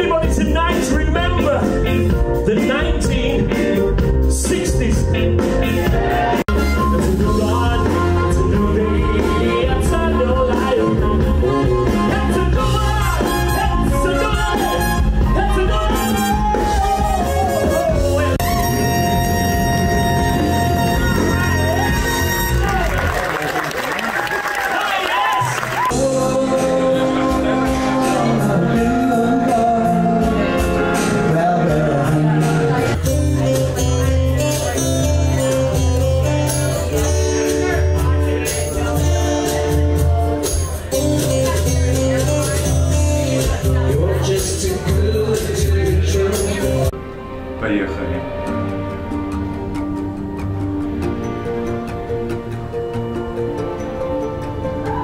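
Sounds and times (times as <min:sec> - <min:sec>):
man singing: 0:00.0 - 0:19.8, 0:25.9 - 0:34.8, 0:41.3 - 0:46.9
pulsing bass line: 0:00.0 - 0:23.3
drum kit: 0:00.0 - 0:23.6, 0:25.4 - 0:47.0
keyboard backing: 0:00.0 - 0:55.0
saxophone: 0:05.6 - 0:24.0.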